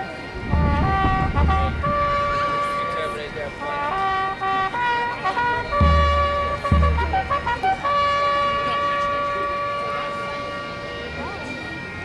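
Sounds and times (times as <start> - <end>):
bugle playing: 0.0 - 12.0
deep drum strokes: 5.7 - 8.8.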